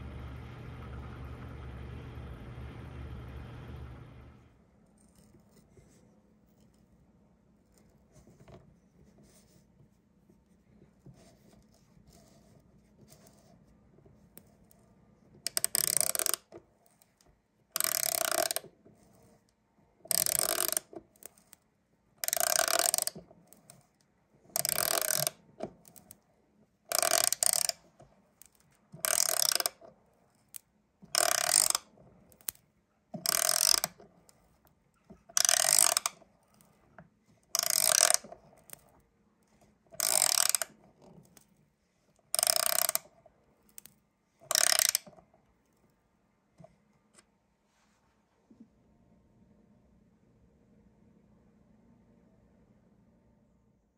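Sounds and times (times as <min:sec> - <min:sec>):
screwdriver driving screw into wood: 0:24.6 - 0:25.4, 0:26.9 - 0:27.8, 0:29.0 - 0:29.8, 0:31.2 - 0:31.8, 0:33.2 - 0:33.9, 0:35.4 - 0:36.1, 0:37.6 - 0:38.3, 0:40.0 - 0:40.7, 0:42.4 - 0:43.0, 0:44.5 - 0:45.0.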